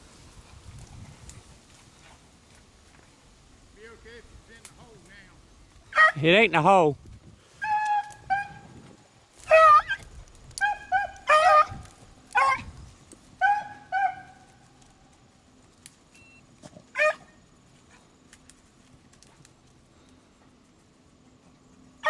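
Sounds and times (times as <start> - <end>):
dogs baying: 7.6 - 8.8, 9.4 - 10.0, 10.6 - 12.7, 13.4 - 14.5.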